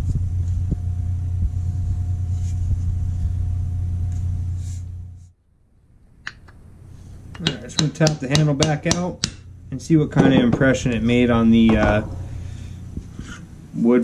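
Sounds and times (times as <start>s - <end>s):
steady low hum: 0.0s - 14.0s
wooden mallet tapping axe handle: 7.4s - 9.4s.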